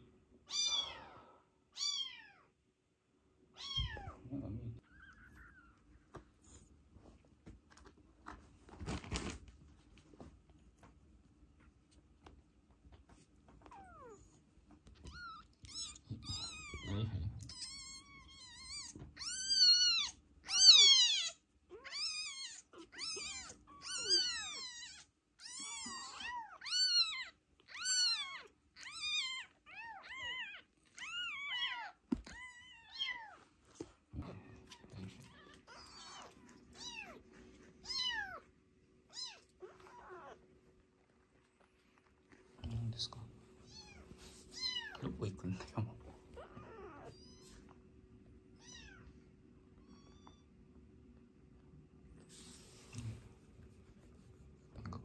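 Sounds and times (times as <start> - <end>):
kittens mewing: 15.0 - 33.4, 39.1 - 40.4, 46.3 - 47.7.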